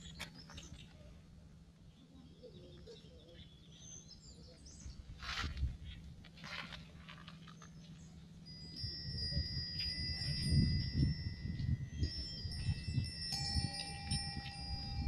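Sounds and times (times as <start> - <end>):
metal wind bells ringing: 7.7 - 15.0.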